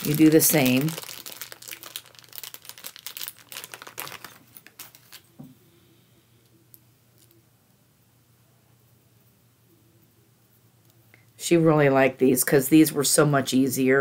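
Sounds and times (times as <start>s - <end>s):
plastic crinkling: 0.0s - 5.4s
faint steady hum: 0.0s - 14.0s.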